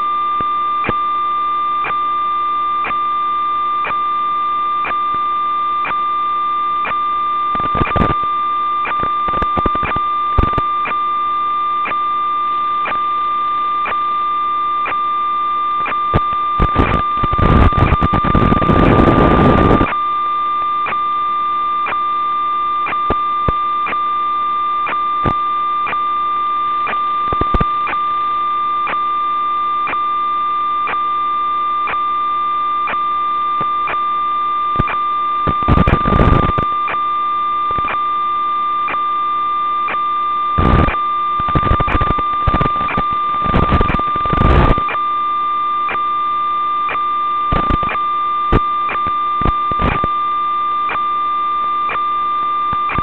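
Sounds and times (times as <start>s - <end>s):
electronic hum with high whine: 0.0s - 53.0s
static crackles: 0.0s - 53.0s
static hiss: 7.5s - 8.3s, 15.8s - 20.0s, 40.6s - 45.0s.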